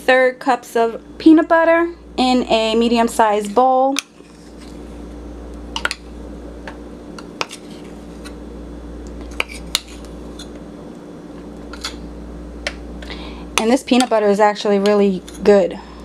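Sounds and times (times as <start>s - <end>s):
low hum: 0.0s - 16.0s.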